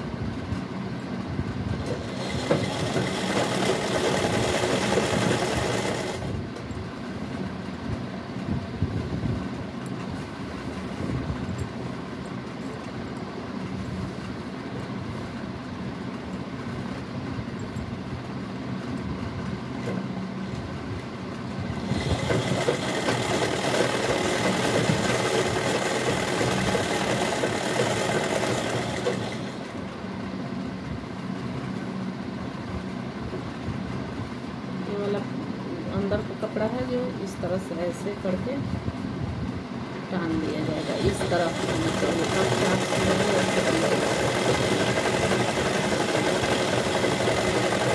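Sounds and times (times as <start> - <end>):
sewing machine stitching: 1.8 - 6.4, 21.8 - 29.8, 40.4 - 47.9.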